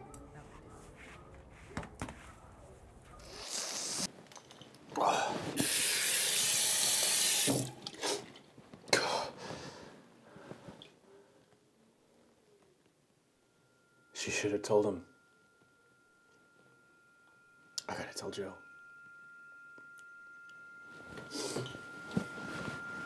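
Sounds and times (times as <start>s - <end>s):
water running: 5.5s - 7.9s.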